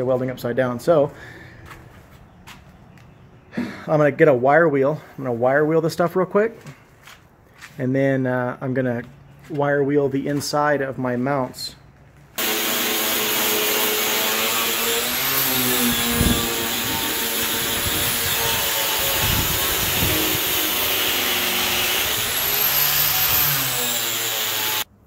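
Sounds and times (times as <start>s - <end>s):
wire wheel scouring steel: 12.4s - 24.9s.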